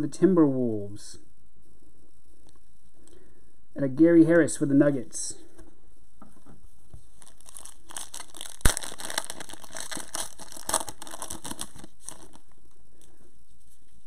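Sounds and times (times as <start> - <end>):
foil wrapper tearing and crinkling: 7.1 - 12.5.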